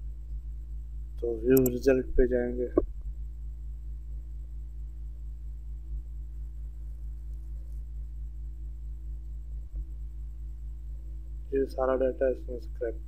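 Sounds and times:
mains hum: 0:00.0 - 0:13.0
faint click: 0:01.6 - 0:01.8.

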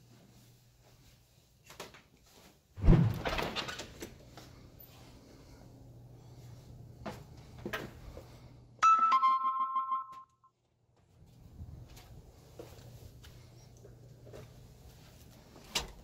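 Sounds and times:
two-note electronic chime: 0:08.8 - 0:10.4.

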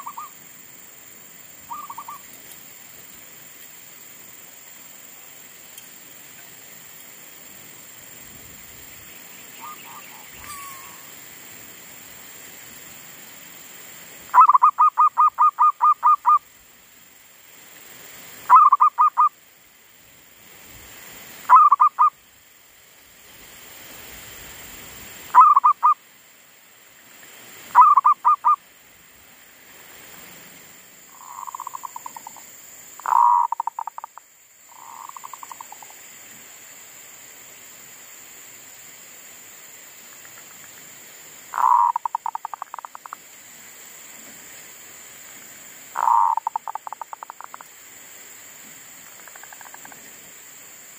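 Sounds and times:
dove cooing: 0:41.6 - 0:42.9, 0:46.0 - 0:47.2.

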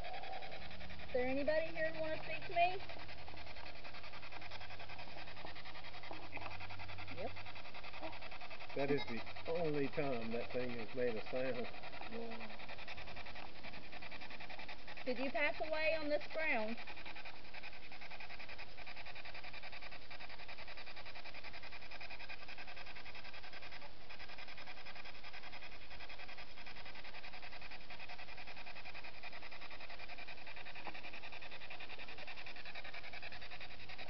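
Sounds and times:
chopped radio static hiss: 0:00.0 - 0:34.0.

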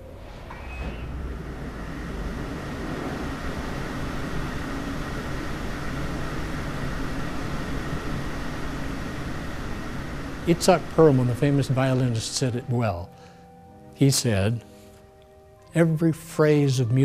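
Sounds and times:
mechanical whirring: 0:00.0 - 0:12.8
faint hum: 0:00.0 - 0:17.0.

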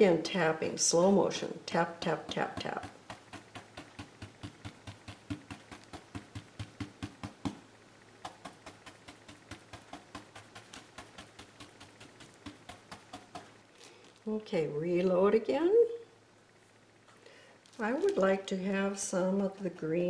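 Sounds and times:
brush tapping on canvas: 0:02.0 - 0:13.6.

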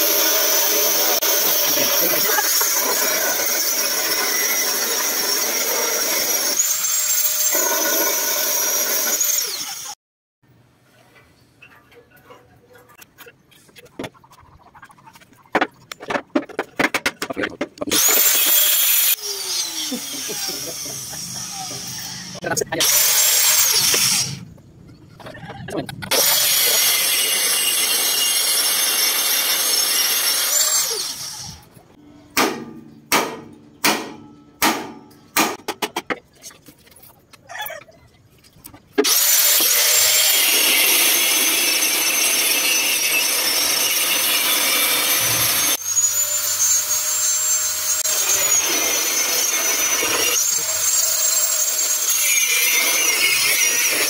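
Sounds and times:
angle grinder on steel: 0:00.0 - 0:10.0, 0:17.8 - 0:24.4, 0:26.1 - 0:31.7, 0:39.0 - 0:54.0.

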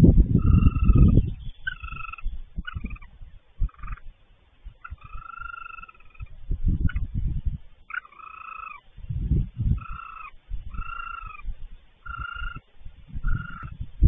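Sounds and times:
frog trilling: 0:00.4 - 0:04.1, 0:04.8 - 0:07.1, 0:07.8 - 0:08.9, 0:09.7 - 0:13.8.

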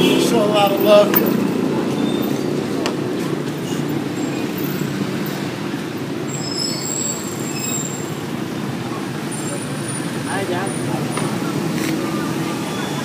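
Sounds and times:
street traffic: 0:00.0 - 0:13.0
high squealing tones: 0:06.3 - 0:08.2.

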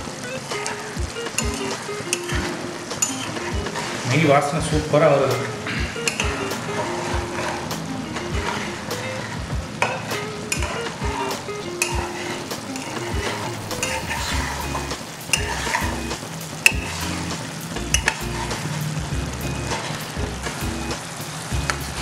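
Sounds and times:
meat sizzling in a pan: 0:00.0 - 0:04.7, 0:05.4 - 0:22.0
metal spoon scraping a pan: 0:01.4 - 0:04.4, 0:05.3 - 0:18.9.

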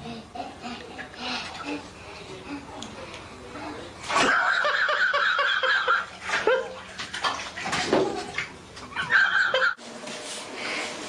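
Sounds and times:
water splashing in bathtub: 0:04.0 - 0:09.8.

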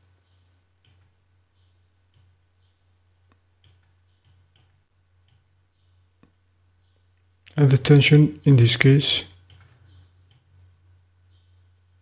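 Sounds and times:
low steady hum: 0:00.0 - 0:12.0
computer mouse clicks: 0:00.8 - 0:01.1, 0:02.1 - 0:02.3, 0:03.3 - 0:05.4, 0:09.3 - 0:10.5.

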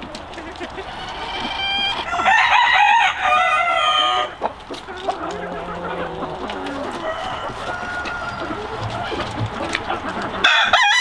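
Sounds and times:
chickens clucking: 0:00.0 - 0:11.0
rooster crowing: 0:01.6 - 0:04.4, 0:05.2 - 0:09.2, 0:10.4 - 0:11.0.

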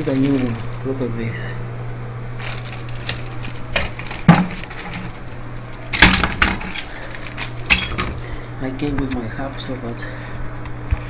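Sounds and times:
steady low hum: 0:00.0 - 0:11.0
metal tools clattering on tile: 0:06.2 - 0:08.1.

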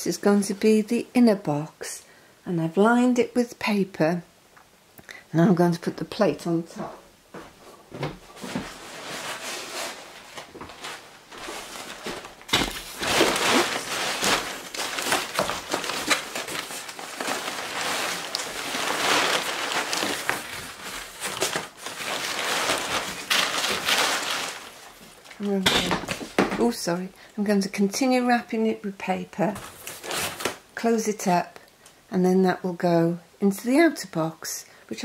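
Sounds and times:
newspaper rustling and crinkling: 0:07.4 - 0:27.0, 0:29.4 - 0:30.7
cardboard scraping against box: 0:08.4 - 0:24.6.

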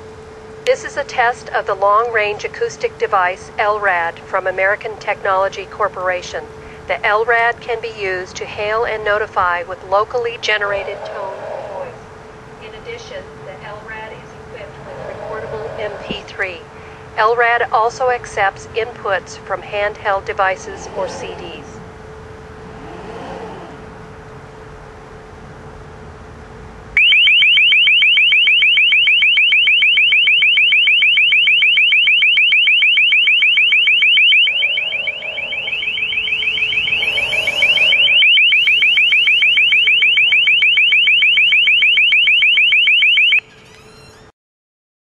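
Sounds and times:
shrill pulsing warning tone: 0:08.0 - 0:17.7, 0:19.0 - 0:24.5, 0:27.0 - 0:43.8.

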